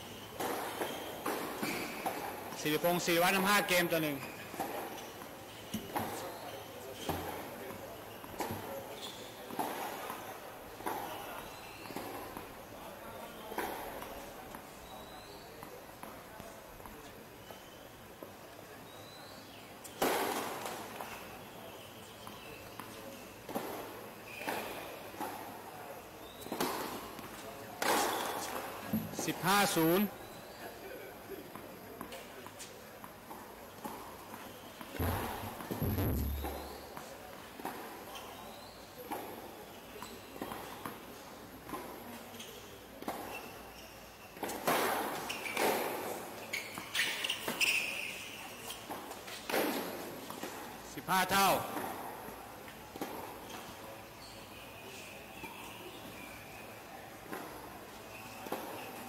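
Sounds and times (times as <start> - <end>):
outdoor background noise: 0.0 - 59.0
shoes squeaking on court: 0.0 - 59.0
tennis ball bouncing on court: 33.8 - 37.8.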